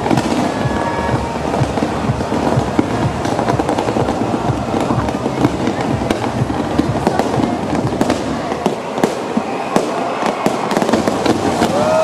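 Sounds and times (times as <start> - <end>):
fireworks crackling and popping: 0.0 - 12.0
spark fountains hissing: 0.0 - 12.0.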